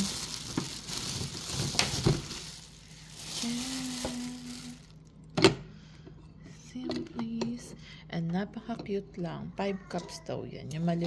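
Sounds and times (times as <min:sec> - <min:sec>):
plastic bag rustling: 0:00.0 - 0:05.1.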